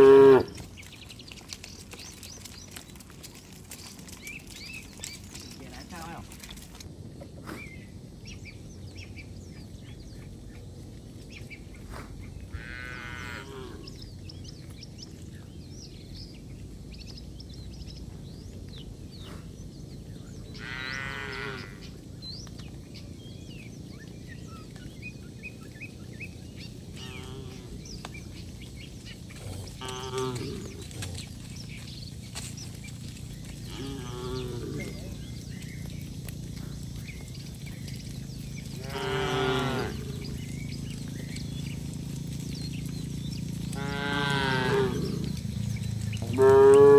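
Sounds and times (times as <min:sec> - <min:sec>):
cattle mooing: 0:00.0 - 0:00.6, 0:12.5 - 0:14.0, 0:20.6 - 0:21.9, 0:26.9 - 0:27.8, 0:29.5 - 0:31.2, 0:33.6 - 0:35.0, 0:38.7 - 0:40.5, 0:43.7 - 0:45.4, 0:46.2 - 0:46.9.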